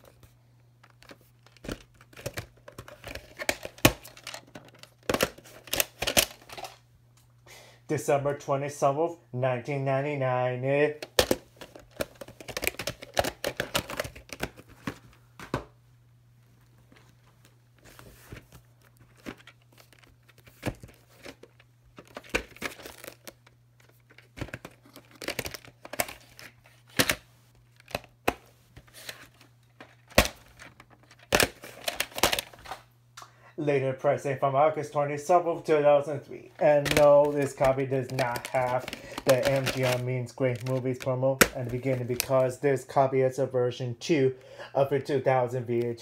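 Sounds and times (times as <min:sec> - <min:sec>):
plastic cases clicking and knocking: 0:00.8 - 0:06.8, 0:11.0 - 0:15.8, 0:19.1 - 0:27.2, 0:29.0 - 0:32.8, 0:36.7 - 0:42.4.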